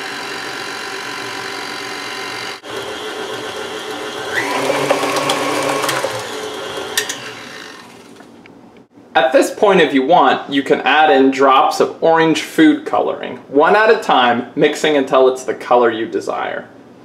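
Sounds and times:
stand mixer motor running: 0:00.0 - 0:08.3.

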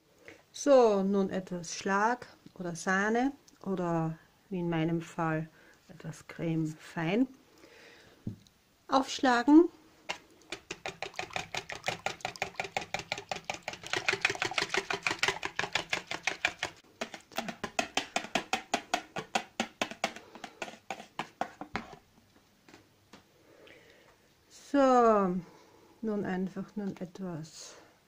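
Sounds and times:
whisk beating cream in bowl: 0:10.5 - 0:19.2.

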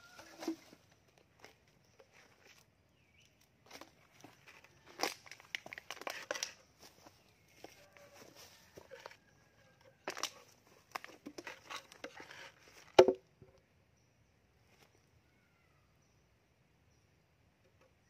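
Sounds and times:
knife scraping wooden box: 0:10.1 - 0:12.9.

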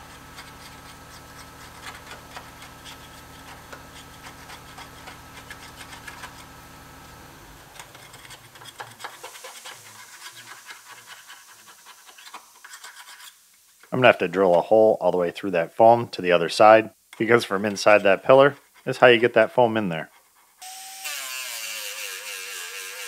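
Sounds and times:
scraper scratching foam from metal: 0:00.0 - 0:06.6, 0:07.7 - 0:13.6, 0:17.7 - 0:18.9, 0:20.0 - 0:23.0.

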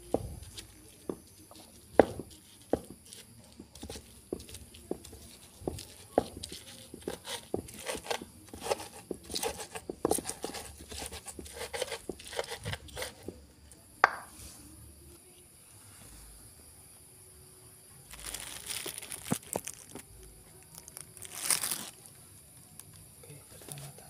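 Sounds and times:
pestle grinding in mortar: 0:00.0 - 0:14.3.

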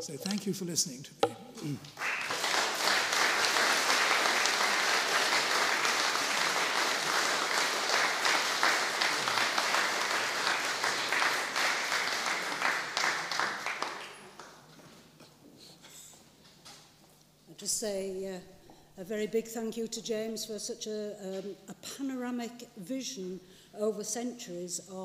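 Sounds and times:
audience applauding: 0:01.6 - 0:14.6.

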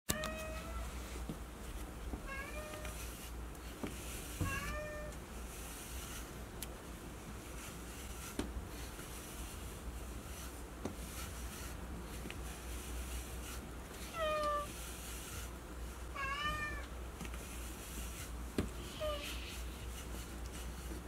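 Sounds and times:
cat meowing: 0:04.5 - 0:05.1, 0:14.1 - 0:14.7, 0:16.2 - 0:16.9.

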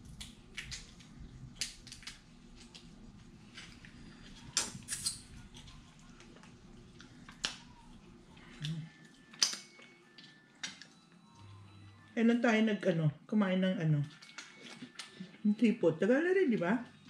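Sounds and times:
low room hum: 0:00.0 - 0:17.0
shells cracking and clicking: 0:01.6 - 0:02.9, 0:09.3 - 0:10.9.

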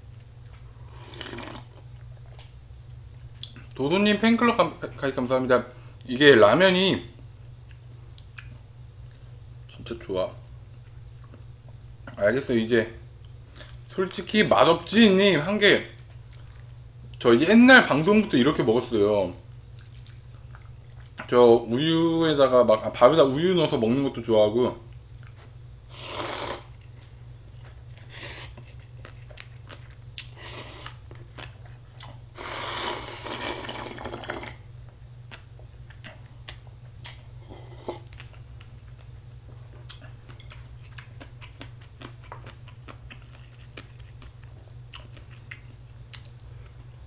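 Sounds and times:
steady low hum: 0:00.0 - 0:47.0
person slurping noodles: 0:00.8 - 0:01.8, 0:25.9 - 0:26.7, 0:32.4 - 0:34.6
chewing with wet mouth clicks: 0:03.4 - 0:03.8, 0:07.6 - 0:09.2, 0:10.4 - 0:12.2, 0:19.7 - 0:21.3, 0:24.9 - 0:25.5, 0:27.6 - 0:32.2, 0:35.2 - 0:37.2, 0:38.0 - 0:39.1, 0:39.7 - 0:47.0.

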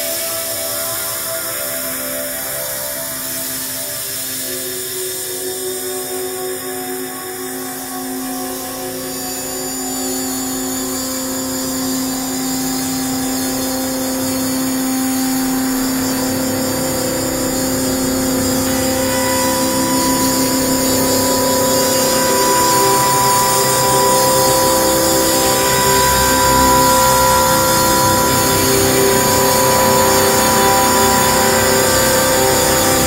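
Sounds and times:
layered droning tones: 0:00.0 - 0:33.0
higher tone: 0:17.8 - 0:33.0.

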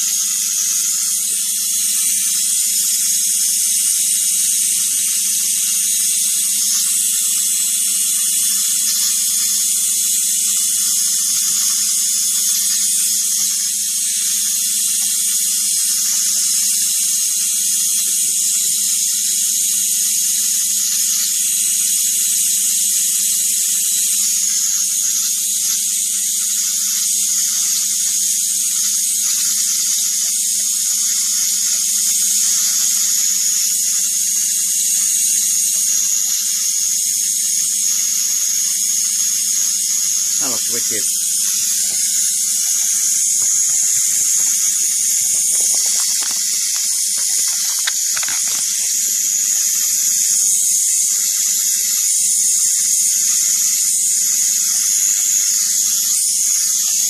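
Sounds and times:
electric arc hissing: 0:00.0 - 0:57.0
low electrical buzz: 0:23.7 - 0:52.0.

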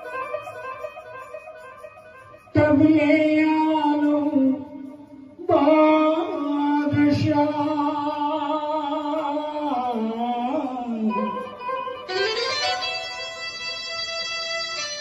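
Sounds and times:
electronic keyboard accompaniment: 0:00.0 - 0:15.0
man singing through a microphone: 0:02.6 - 0:11.7.

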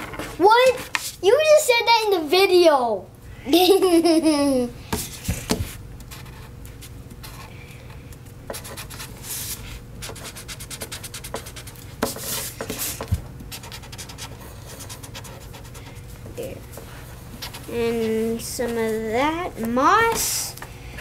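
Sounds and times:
markers stroking across paper: 0:08.5 - 0:16.0.

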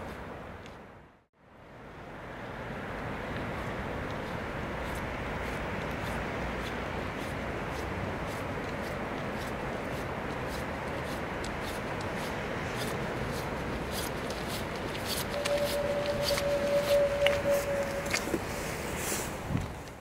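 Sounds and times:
steady background noise: 0:00.0 - 0:20.0
footsteps: 0:10.4 - 0:19.8
steady tone: 0:15.3 - 0:18.8.

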